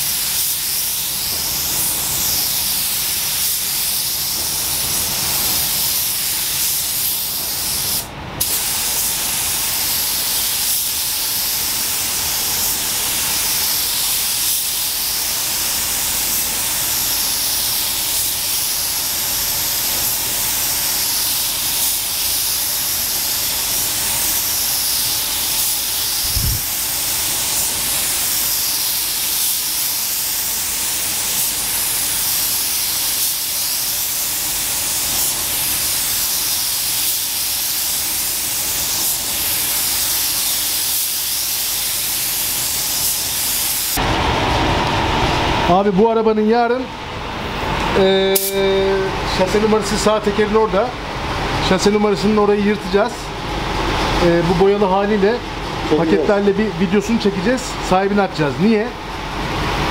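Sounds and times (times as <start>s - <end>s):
paint spray gun hissing: 0.0s - 44.0s.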